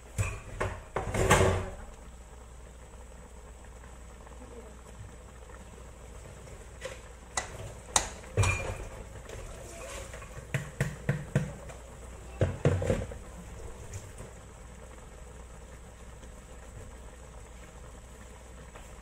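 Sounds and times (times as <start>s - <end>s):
spatula knocking against a wok: 10.4s - 11.6s.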